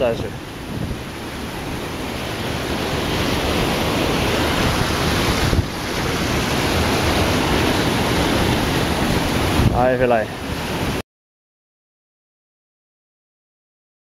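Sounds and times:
river water rushing: 0:00.0 - 0:11.0
wind buffeting microphone: 0:00.0 - 0:11.0.

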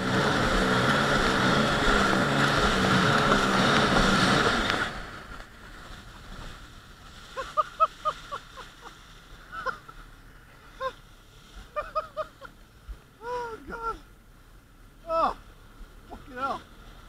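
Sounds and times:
water spray rushing: 0:00.0 - 0:09.6
jet ski engine: 0:00.0 - 0:17.0.

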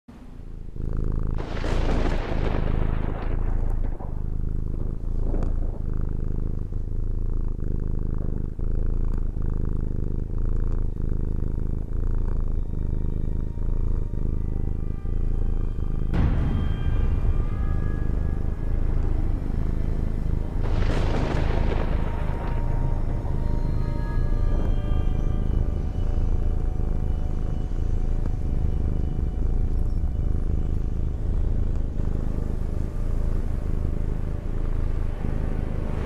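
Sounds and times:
cat purring: 0:00.1 - 0:36.0
music: 0:12.0 - 0:36.0.

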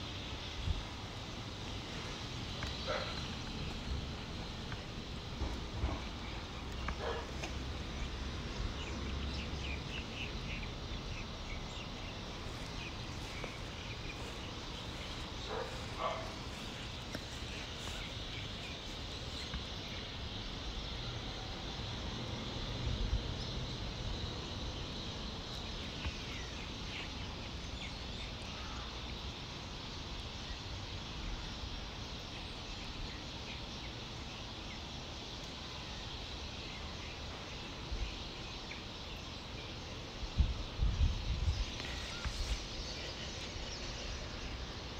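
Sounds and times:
steady high-pitched hum: 0:00.0 - 0:35.1
bird chirps: 0:11.5 - 0:19.6
wind rumble on microphone: 0:40.2 - 0:44.3.

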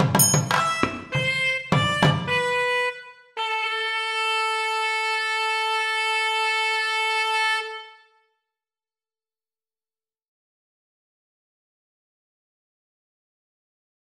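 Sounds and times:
cymbal strikes: 0:00.0 - 0:01.9
drum strikes: 0:00.0 - 0:02.6
double-reed wind instrument: 0:00.3 - 0:08.4.

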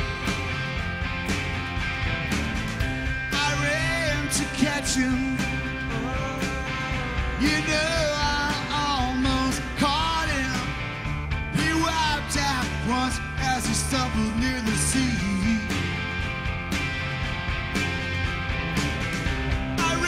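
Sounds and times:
drum hits and cymbals: 0:00.0 - 0:20.0
rock band playing: 0:00.0 - 0:20.0
man singing: 0:03.3 - 0:10.8, 0:11.5 - 0:15.9, 0:19.8 - 0:20.0.

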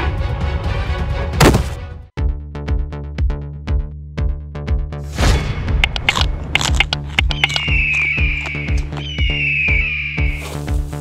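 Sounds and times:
electronic music with drum beat: 0:07.2 - 0:11.0.

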